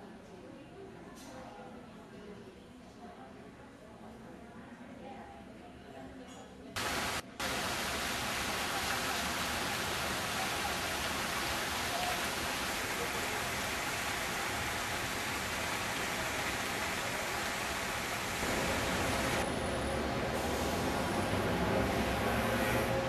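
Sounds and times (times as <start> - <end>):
fountain spray hissing: 6.8 - 19.6, 20.2 - 23.0
low water rumble: 6.8 - 23.0.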